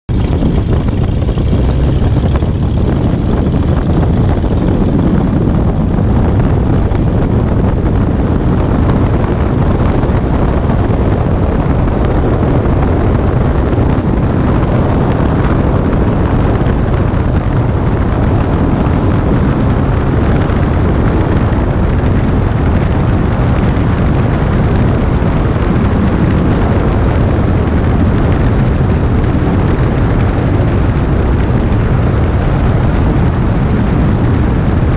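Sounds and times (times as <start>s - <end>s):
propeller plane engine drone: 0.1s - 34.9s
wheels rolling on runway: 0.1s - 34.9s
wind rumble: 0.1s - 34.9s.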